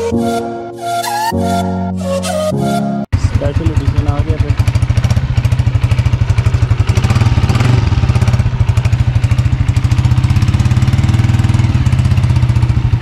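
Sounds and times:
motorcycle engine idling: 0:03.1 - 0:13.0.

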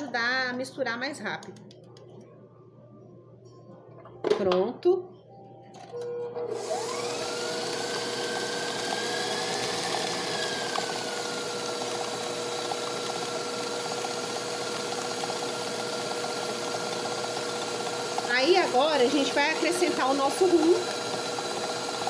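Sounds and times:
stand mixer motor whining: 0:06.0 - 0:22.0
beater turning through cookie dough: 0:06.3 - 0:22.0.

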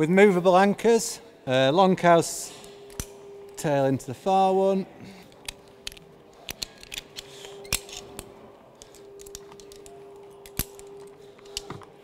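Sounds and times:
faint steady hum: 0:01.2 - 0:12.0
metal karabiners clinking: 0:05.3 - 0:11.9.

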